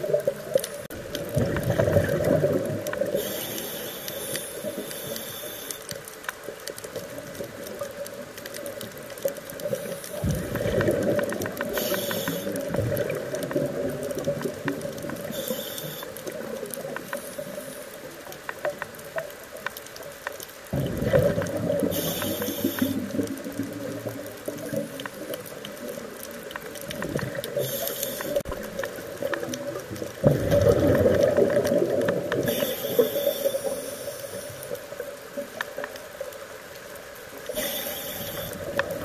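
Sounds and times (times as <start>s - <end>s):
hissing inhalations: 3.1s - 6.0s, 11.7s - 12.6s, 15.3s - 16.2s, 21.9s - 23.2s, 27.6s - 28.5s, 32.4s - 34.7s, 37.5s - 38.8s
sharp clicks: 8.0s - 13.6s.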